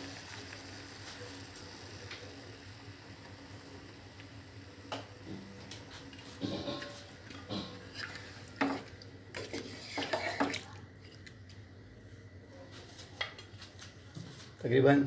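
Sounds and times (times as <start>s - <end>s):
wooden spatula scraping a pan: 5.9s - 10.6s.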